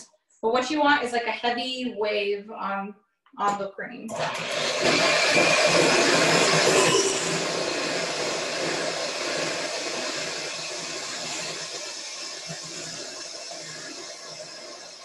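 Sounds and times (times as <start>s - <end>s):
electric hand mixer whirring: 4.1s - 15.0s.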